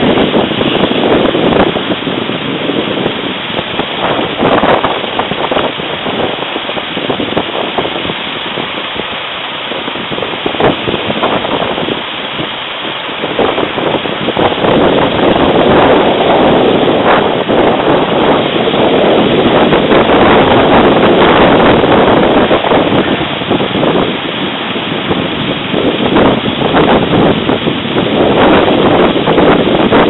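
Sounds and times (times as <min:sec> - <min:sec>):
road traffic rushing: 0:00.0 - 0:29.1.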